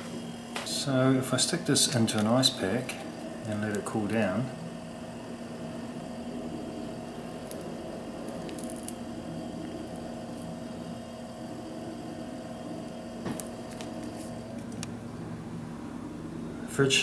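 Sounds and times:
compressor humming: 0.0s - 17.0s
plastic ice pack crinkling: 8.2s - 10.1s.

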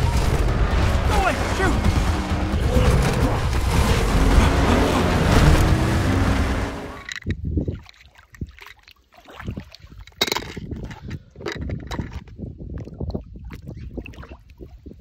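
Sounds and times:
rushing churning water: 0.0s - 7.1s
low hum: 0.0s - 7.3s
short water sounds: 1.0s - 15.0s.

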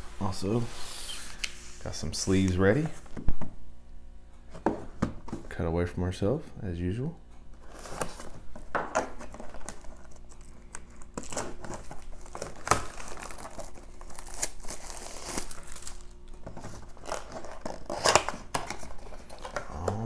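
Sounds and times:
plastic shrink wrap crinkling: 9.1s - 19.8s
cardboard tearing open: 9.2s - 20.0s.

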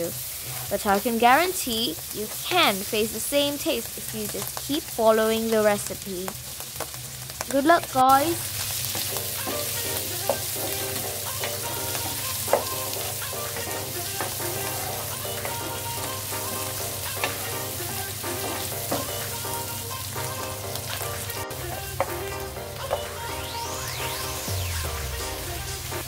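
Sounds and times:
mushrooms sizzling in frying pan: 0.0s - 26.0s
wooden spoon knocking on pan: 8.9s - 12.9s, 18.3s - 19.3s.

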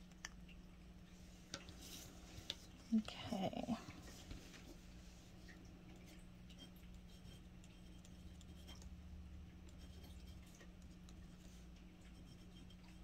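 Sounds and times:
low steady hum: 0.0s - 13.0s
pen nib scratching on card: 6.6s - 8.9s, 9.7s - 11.5s, 12.1s - 13.0s.

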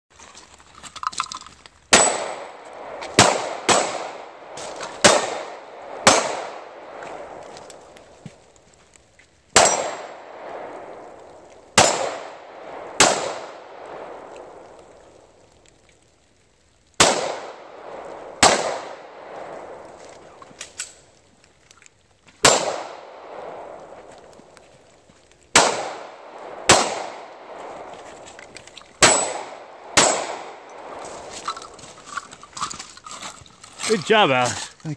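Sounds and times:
pistol shots: 1.9s - 7.4s, 9.6s - 11.0s, 11.8s - 14.7s, 17.0s - 19.9s, 22.4s - 23.9s, 25.5s - 27.8s, 29.0s - 31.4s.

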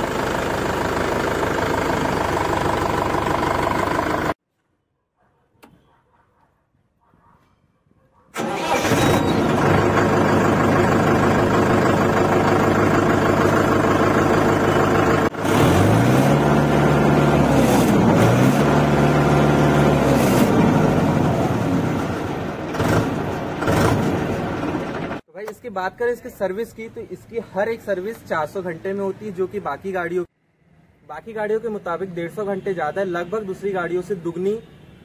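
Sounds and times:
tractor diesel engine running: 0.0s - 4.4s, 8.4s - 25.2s.

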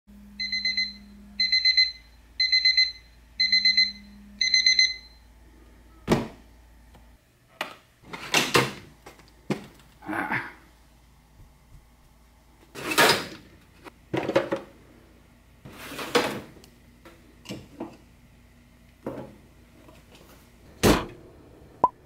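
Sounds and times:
phone alarm rapid high beeps: 0.4s - 5.3s.

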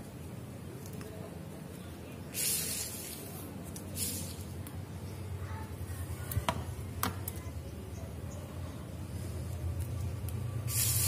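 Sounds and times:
wire rustling hiss: 2.2s - 4.8s, 9.2s - 11.0s.

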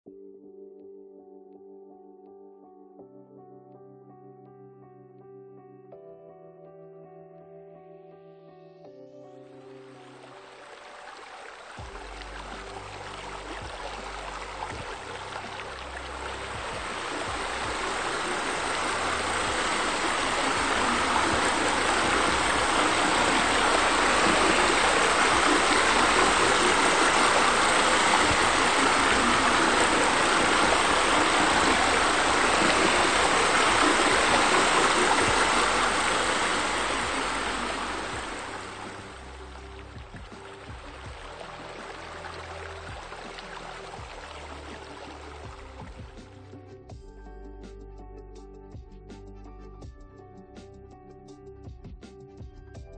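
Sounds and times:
waterfall rushing into pool: 10.1s - 46.1s.

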